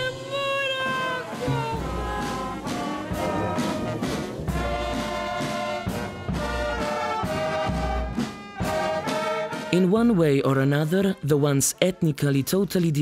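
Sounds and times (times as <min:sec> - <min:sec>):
marching brass band playing: 0:00.0 - 0:10.3
steady drum beat: 0:00.0 - 0:10.5.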